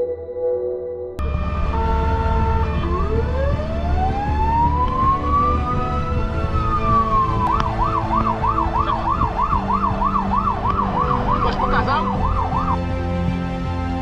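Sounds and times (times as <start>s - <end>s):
fire engine siren: 1.2s - 13.0s
truck engine running: 1.2s - 14.0s.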